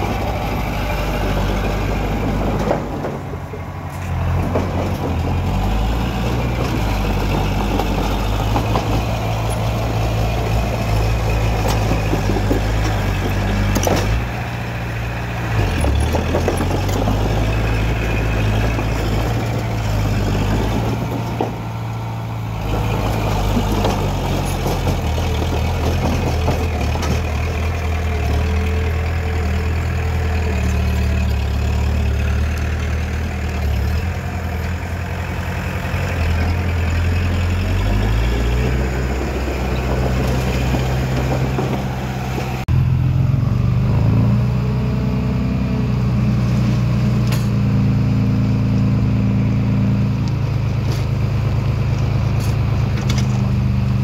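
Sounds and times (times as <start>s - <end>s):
heavy diesel engine working: 0.0s - 54.0s.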